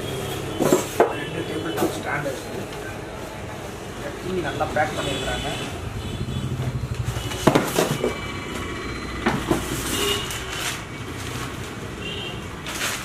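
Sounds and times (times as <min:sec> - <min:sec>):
cardboard scraping: 0:12.6 - 0:13.0.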